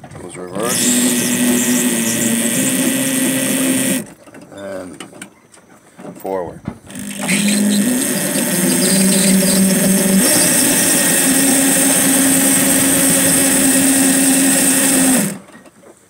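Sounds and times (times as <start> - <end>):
electric motor hum: 0.6 - 4.2, 6.9 - 15.5
roller chain noise: 6.9 - 15.6.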